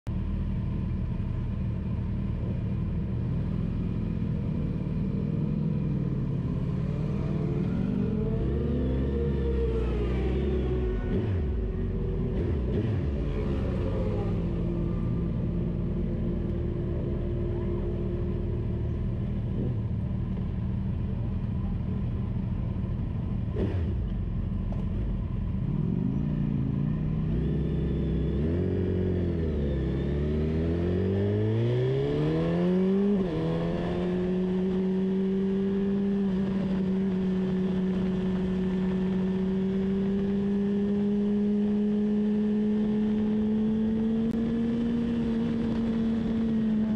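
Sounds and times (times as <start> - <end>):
car engine accelerating: 5.1 - 20.6.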